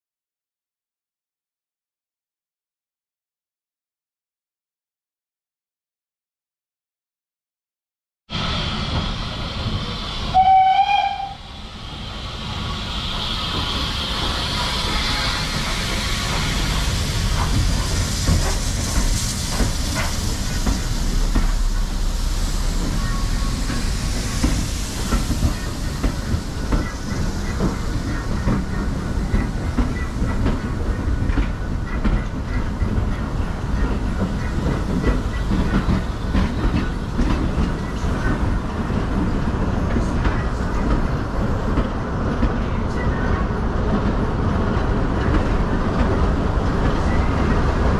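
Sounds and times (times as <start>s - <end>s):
steam engine hissing: 8.3s - 43.3s
train carriages rumbling: 8.6s - 47.9s.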